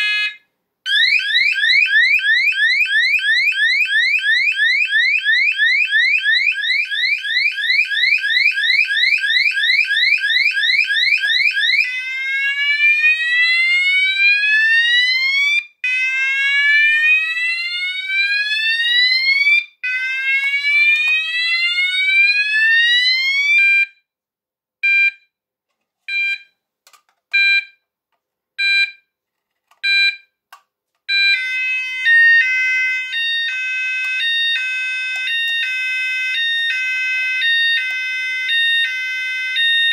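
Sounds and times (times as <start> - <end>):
fire alarm sounder whooping: 0.0 - 23.8, 31.1 - 39.9
two-tone alarm warble: 31.2 - 39.9.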